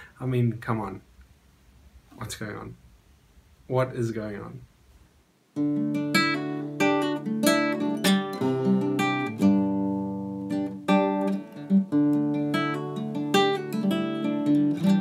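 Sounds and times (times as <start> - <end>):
acoustic guitar playing: 5.5 - 15.0.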